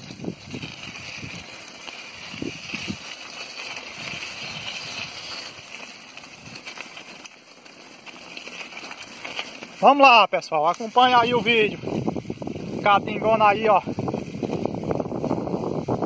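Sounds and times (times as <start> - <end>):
bicycle tyres crunching on gravel: 0.0 - 16.0
steady high hiss: 8.7 - 16.0.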